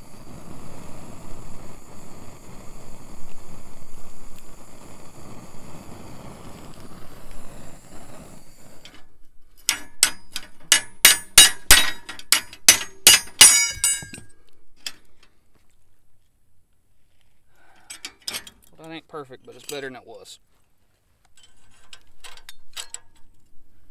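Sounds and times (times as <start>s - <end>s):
wind on microphone: 0.0s - 8.9s
gas torch flame hissing: 0.0s - 14.0s
hammer ringing on steel: 9.7s - 14.2s.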